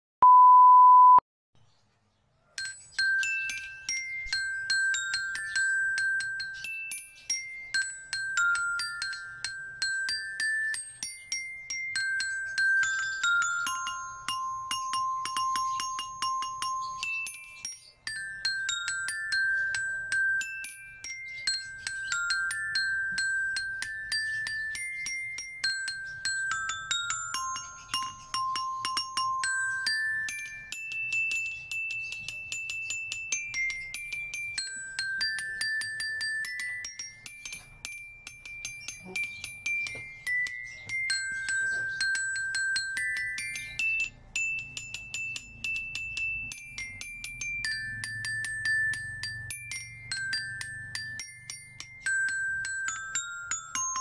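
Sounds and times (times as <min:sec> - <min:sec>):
test tone beep: 0:00.2 - 0:01.2
glockenspiel melody: 0:02.4 - 0:54.0.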